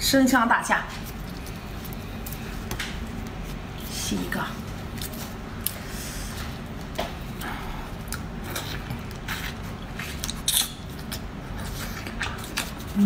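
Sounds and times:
low background hum: 0.0s - 13.0s
chewing: 7.4s - 13.0s.

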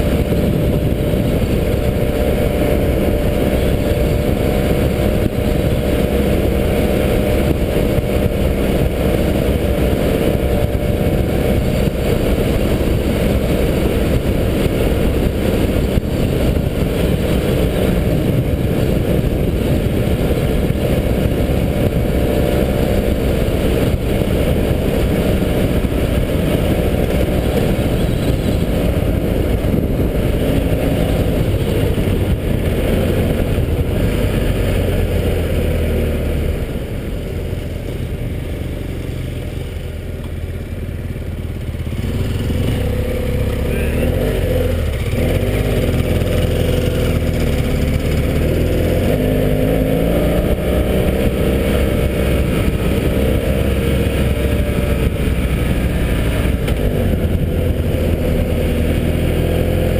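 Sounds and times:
wind rushing: 0.0s - 38.4s
motorcycle engine running: 0.0s - 59.9s.

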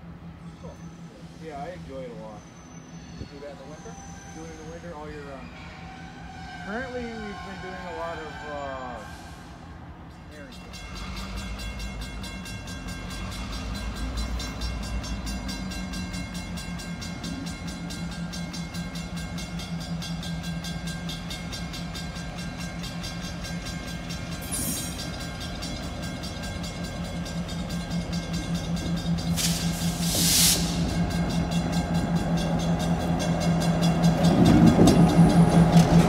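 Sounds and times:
diesel locomotive engine running: 0.0s - 36.0s
short hiss: 29.4s - 30.8s.

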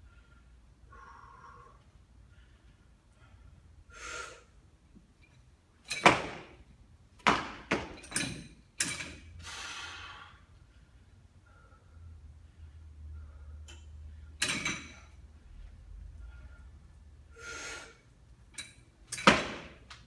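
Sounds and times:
barbell thuds: 5.9s - 6.6s, 7.2s - 9.2s, 19.1s - 19.9s.

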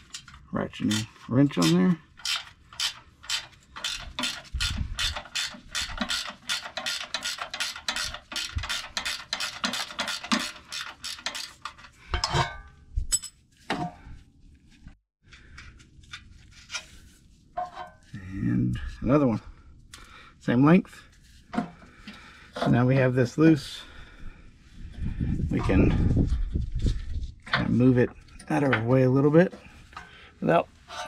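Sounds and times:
ratcheting wrench clicking: 0.9s - 11.8s.

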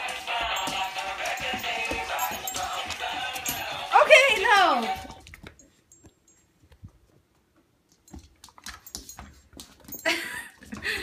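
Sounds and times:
dog claws tapping on wooden floor: 0.1s - 6.2s.

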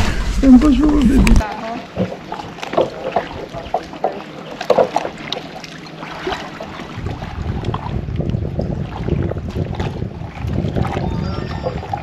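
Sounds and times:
water lapping against rocks: 0.0s - 12.0s
small splashes: 1.8s - 7.9s
wind buffeting microphone: 6.9s - 12.0s.

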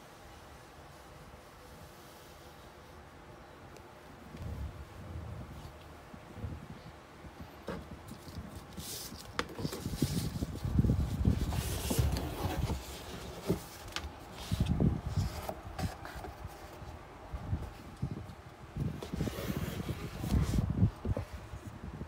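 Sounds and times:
box lid coming off: 11.4s - 14.1s.

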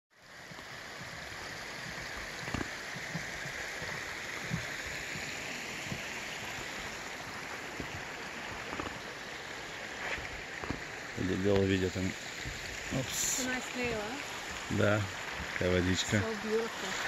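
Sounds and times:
stream rushing: 0.1s - 17.0s
footsteps on wooden boardwalk: 0.4s - 11.7s, 12.3s - 12.9s.

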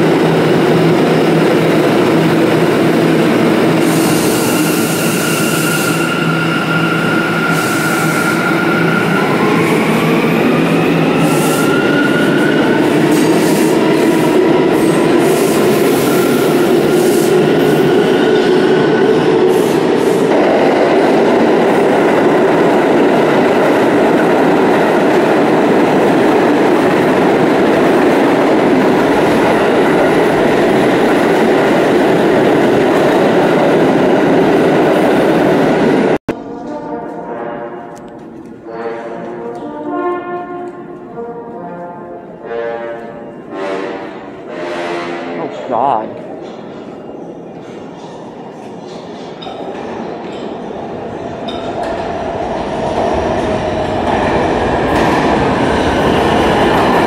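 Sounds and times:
train cars rumbling on tracks: 0.0s - 36.6s.

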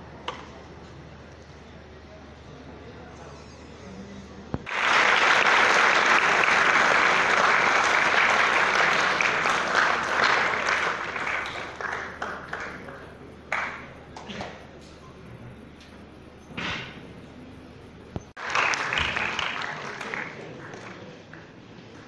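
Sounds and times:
audience applause: 4.6s - 13.9s, 18.4s - 22.0s.

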